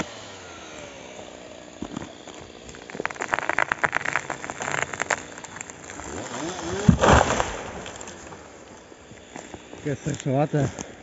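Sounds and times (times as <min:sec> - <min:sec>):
tree cracking and snapping: 0:00.8 - 0:11.0
tree crashing to the ground: 0:02.7 - 0:08.8.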